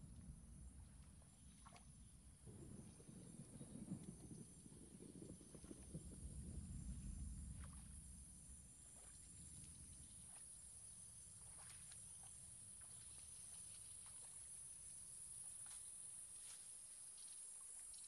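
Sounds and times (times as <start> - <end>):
wading through water: 5.3 - 18.0.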